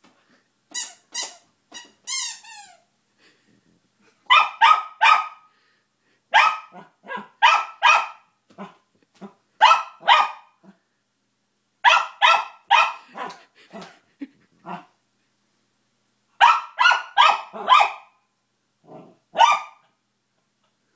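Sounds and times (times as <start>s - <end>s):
small dog barking: 4.3s - 5.5s, 6.3s - 10.8s, 11.8s - 13.9s, 16.4s - 18.2s, 19.3s - 19.9s.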